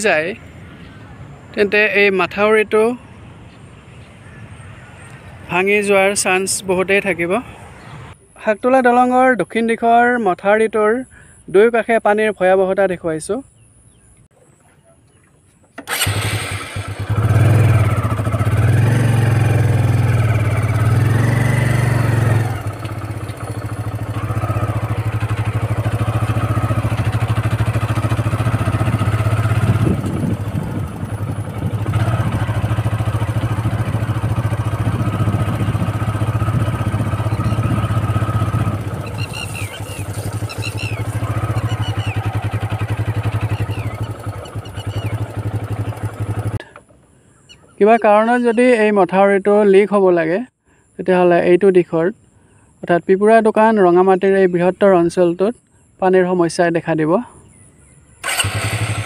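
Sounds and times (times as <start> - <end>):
motorcycle engine running: 15.8 - 46.8, 58.2 - 59.0
short high chirps: 39.0 - 42.3.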